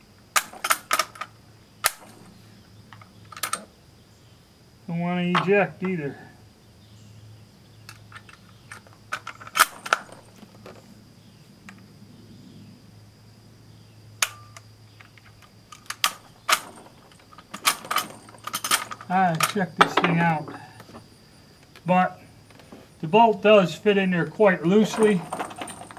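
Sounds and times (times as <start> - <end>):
rifle bolt metallic clicks: 14.2 - 19.6.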